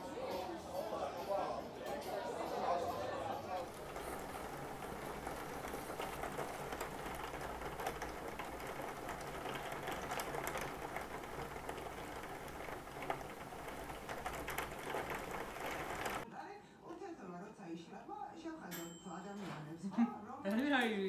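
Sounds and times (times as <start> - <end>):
rain pattering on window: 2.2 - 16.3.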